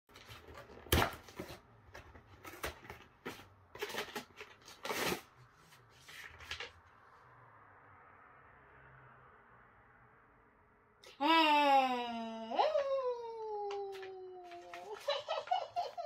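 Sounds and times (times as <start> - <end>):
paper rustling and tearing: 0.1 - 6.8.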